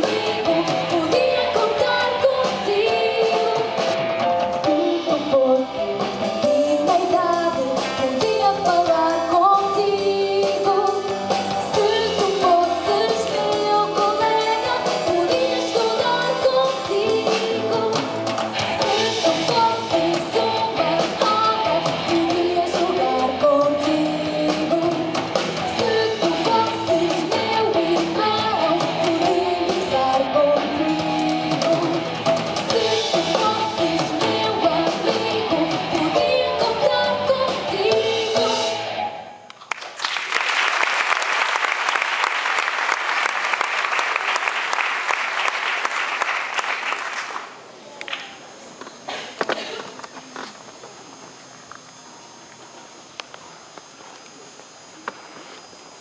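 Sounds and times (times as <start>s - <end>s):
person singing: 0.0s - 4.0s, 4.6s - 39.1s
live rock band playing: 0.0s - 39.4s
audience applause: 39.6s - 48.3s.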